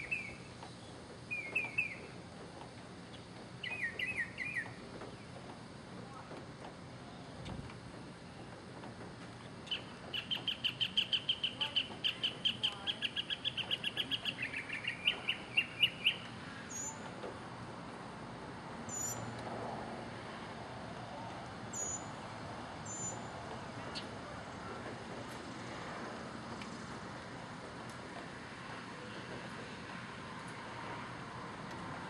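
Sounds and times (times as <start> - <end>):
mockingbird singing: 0.0 - 0.4, 1.3 - 2.1, 3.6 - 4.7, 9.6 - 17.0.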